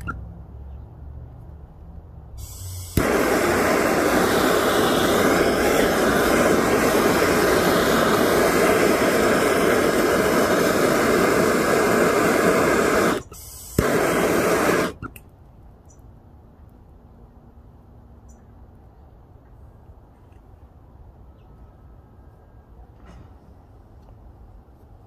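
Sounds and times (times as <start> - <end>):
gas torch flame hissing: 2.4 - 15.2
torch ignition click: 2.4 - 15.3.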